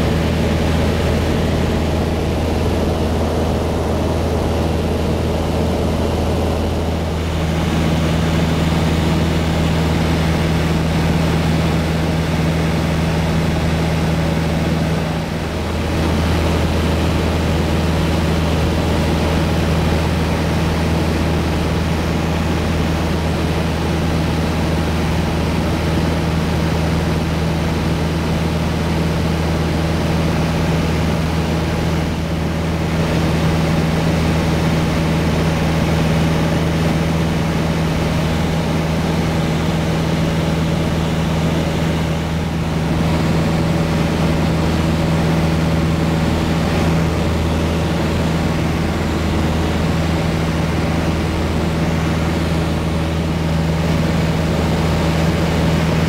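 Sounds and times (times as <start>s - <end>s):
airflow rushing: 0.0s - 10.4s
airplane engine and propeller droning: 0.0s - 56.0s.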